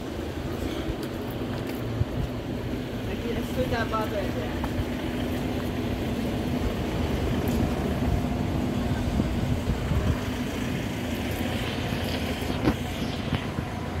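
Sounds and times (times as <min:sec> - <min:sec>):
diesel engine idling: 0:00.0 - 0:14.0
wind on microphone: 0:06.8 - 0:14.0.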